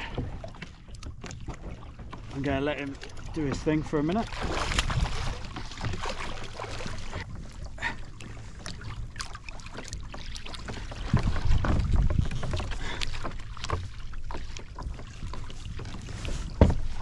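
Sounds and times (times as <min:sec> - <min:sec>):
water splashing against kayak: 0:00.0 - 0:17.0
wind rumble on microphone: 0:04.4 - 0:06.2, 0:10.9 - 0:13.0.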